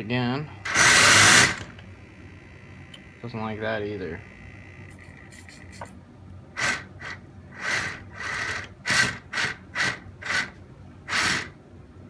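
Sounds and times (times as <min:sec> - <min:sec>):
rc vehicle motors and tracks: 0:00.7 - 0:01.7, 0:06.6 - 0:10.5, 0:11.1 - 0:11.6.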